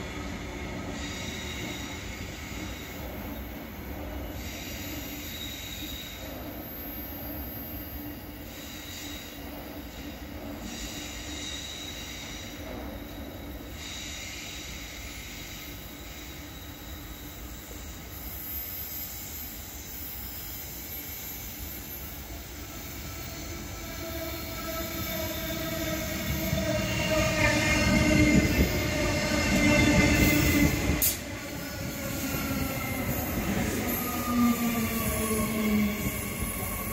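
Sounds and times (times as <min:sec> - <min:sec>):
train wheels squealing: 0:00.0 - 0:36.9
train rumble: 0:22.6 - 0:36.9.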